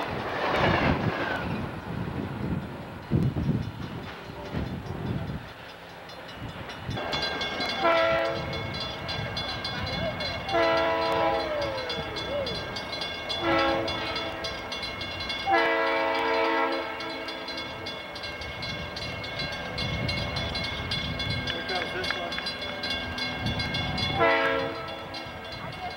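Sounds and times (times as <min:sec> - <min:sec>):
train rumble: 0:00.0 - 0:25.9
locomotive air horn blasts: 0:07.8 - 0:08.6, 0:10.4 - 0:11.7, 0:13.3 - 0:14.6, 0:15.4 - 0:17.6, 0:24.0 - 0:25.2.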